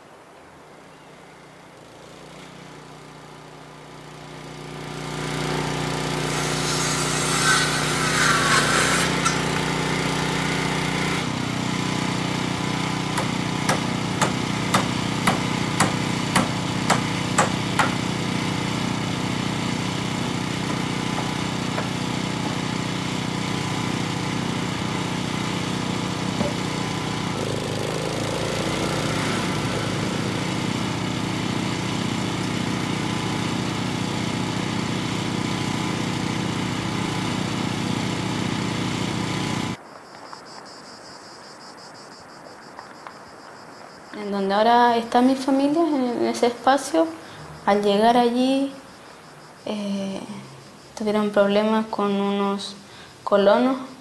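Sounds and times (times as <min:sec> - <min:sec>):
small engine running: 0:01.7 - 0:39.8
hammer blows on wood: 0:06.3 - 0:09.8, 0:13.1 - 0:18.1.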